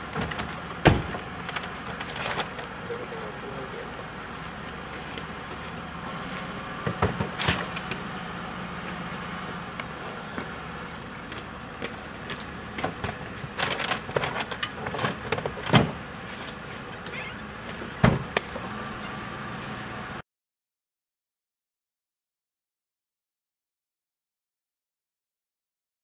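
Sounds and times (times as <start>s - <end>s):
low engine hum: 0.0s - 20.2s
trunk lid slamming shut: 0.2s - 1.2s, 18.0s - 18.4s.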